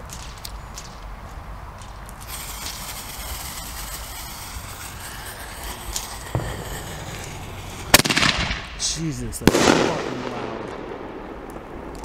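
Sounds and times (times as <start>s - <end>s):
small crackles: 0.0s - 4.9s
firework fuse hissing: 1.8s - 10.2s.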